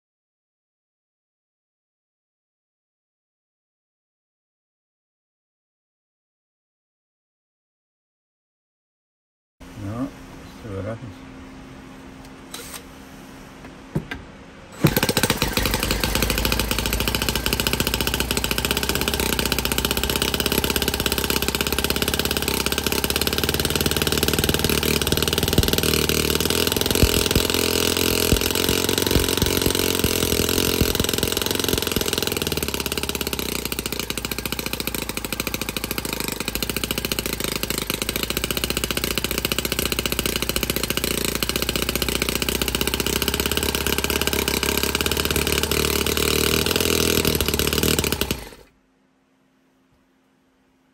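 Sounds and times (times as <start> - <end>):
model stationary engine running: 14.7 - 48.7
small clicks: 23.4 - 38.3.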